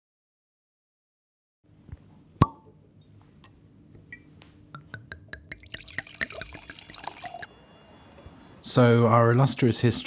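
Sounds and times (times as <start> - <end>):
glass clinking: 4.1 - 7.5
wine pouring into a glass: 5.3 - 7.5.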